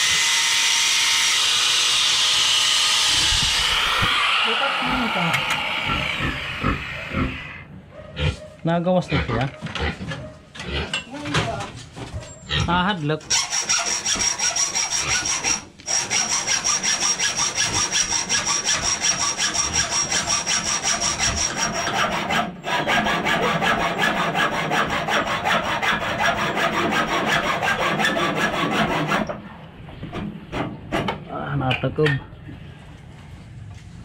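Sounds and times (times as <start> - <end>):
hacksaw sawing: 0.0 - 7.6, 13.3 - 29.4.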